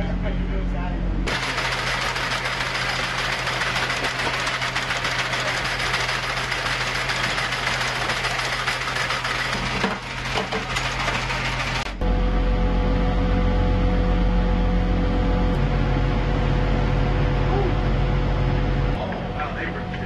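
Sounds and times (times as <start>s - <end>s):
steady motor hum: 0.0s - 20.0s
fast mechanical rattle: 1.3s - 12.0s.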